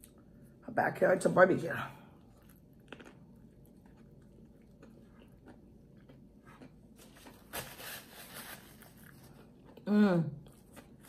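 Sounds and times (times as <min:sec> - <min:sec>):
chewing food: 0:02.1 - 0:07.5, 0:09.0 - 0:11.0.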